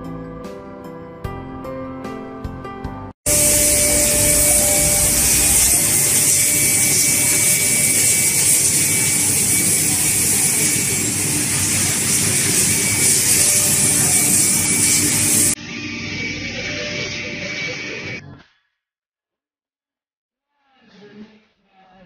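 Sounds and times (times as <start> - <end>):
faint high whine: 3.3 - 15.6
woodworking machine hissing: 3.3 - 15.6.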